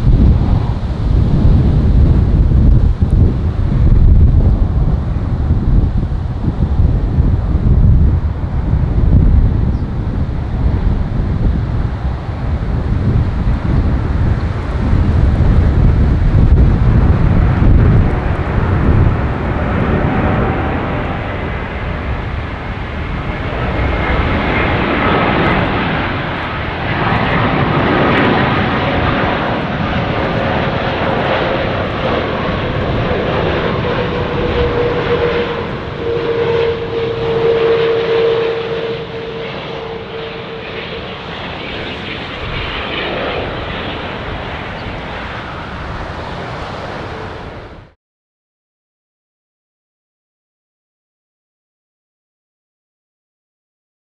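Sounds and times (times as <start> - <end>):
jet engines rumbling and whining: 0.0 - 48.0.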